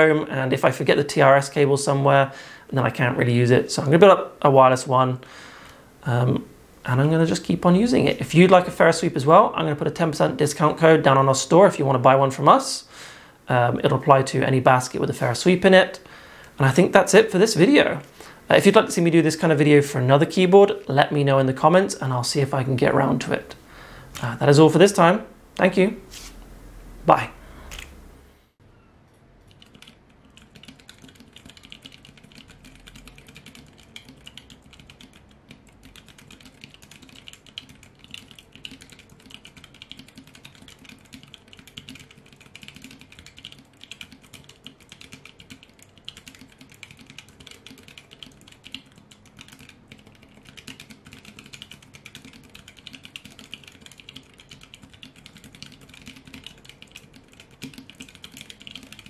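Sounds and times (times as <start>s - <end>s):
fast typing key clicks: 29.5s - 59.0s.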